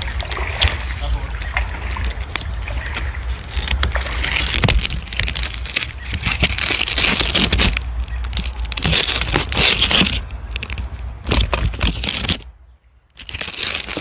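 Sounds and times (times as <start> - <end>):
water splashing from wading: 0.0 - 8.7.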